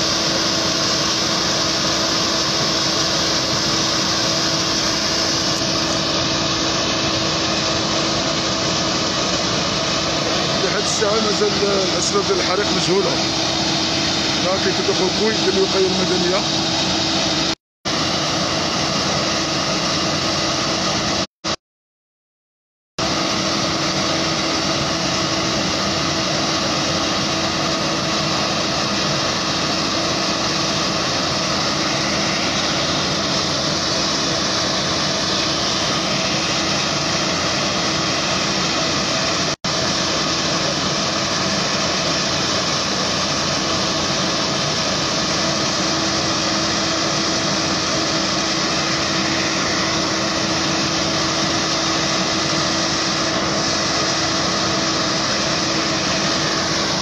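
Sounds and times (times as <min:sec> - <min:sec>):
fire engine humming: 0:00.0 - 0:21.3, 0:23.0 - 0:57.0
loud rushing noise: 0:23.0 - 0:39.6, 0:40.2 - 0:57.0.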